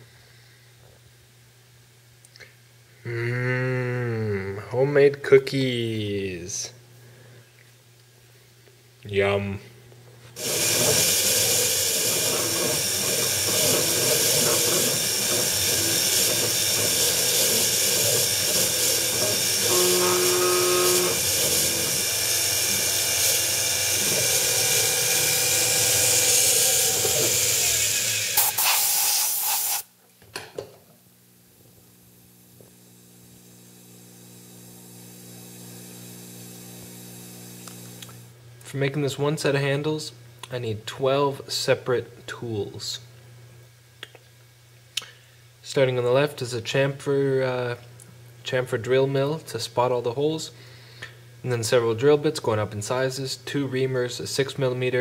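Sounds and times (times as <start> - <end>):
milling machine whine: 10.4 - 28.7, 32.9 - 38.2
coolant nozzle hissing: 10.4 - 29.9
faint steady hum: 19.6 - 21.2, 29.9 - 55.0.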